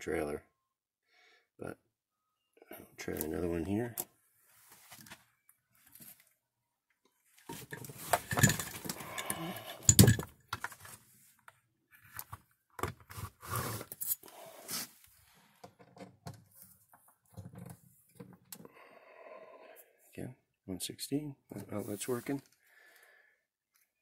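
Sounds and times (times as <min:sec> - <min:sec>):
rustling and scraping: 0:04.4 - 0:06.3, 0:07.3 - 0:10.0.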